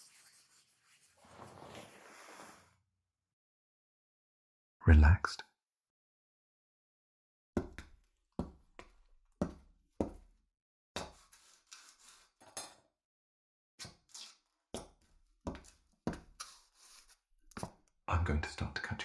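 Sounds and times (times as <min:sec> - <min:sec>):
scratchy noise: 0:00.0 - 0:02.7.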